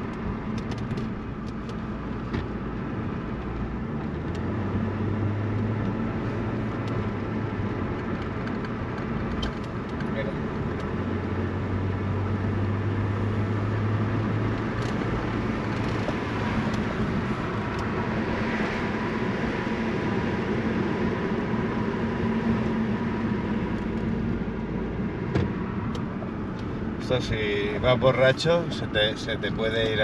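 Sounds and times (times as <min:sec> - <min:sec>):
car engine and road noise: 0:00.0 - 0:30.0.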